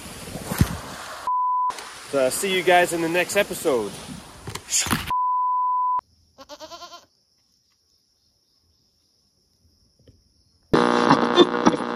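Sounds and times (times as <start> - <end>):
electronic beep: 5.1 - 6.0
goat bleating: 6.4 - 7.1.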